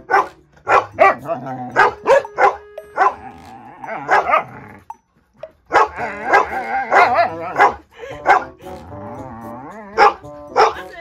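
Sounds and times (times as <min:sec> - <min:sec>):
dog barking and grumbling: 0:00.0 - 0:05.0, 0:05.6 - 0:10.9
dog whining yowls: 0:05.7 - 0:07.8.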